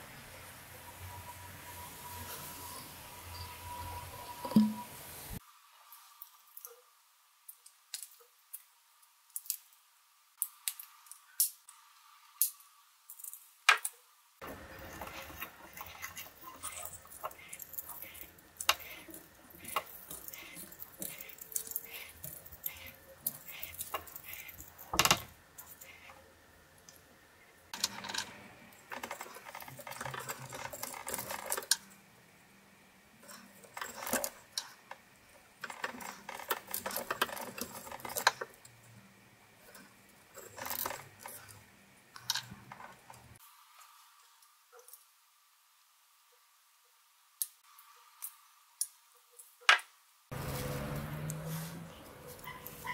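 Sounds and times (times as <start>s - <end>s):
tool scraping wood and wire: 14.4s - 26.2s, 27.8s - 31.9s, 35.6s - 38.6s.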